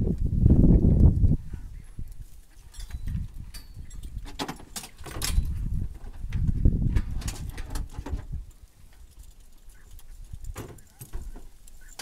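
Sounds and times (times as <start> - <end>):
metal hardware clinking: 2.6 - 5.7.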